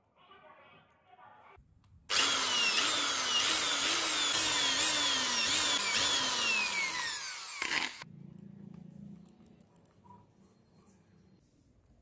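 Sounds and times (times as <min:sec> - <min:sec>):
electric power tool motor: 0:02.1 - 0:08.0.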